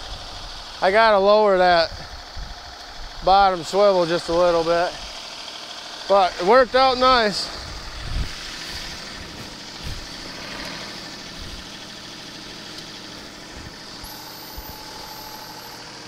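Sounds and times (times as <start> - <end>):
diesel tractor engine idling: 0.0 - 16.0
thin hydraulic whine: 13.5 - 16.0.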